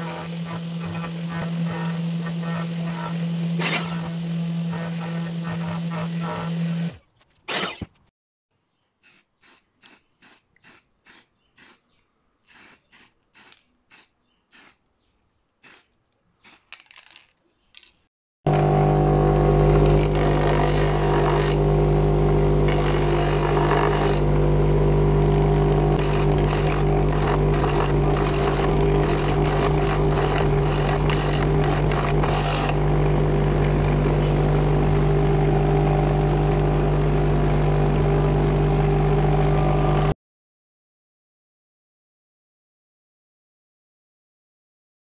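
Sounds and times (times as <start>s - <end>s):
sanding disc motor grinding: 0.0s - 7.0s, 18.5s - 40.1s
scratchy paint brush strokes: 26.0s - 32.3s.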